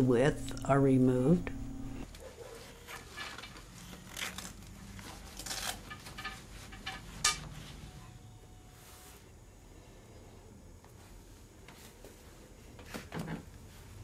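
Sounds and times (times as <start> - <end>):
cloth and thread rustling: 2.1 - 9.4, 10.3 - 14.0.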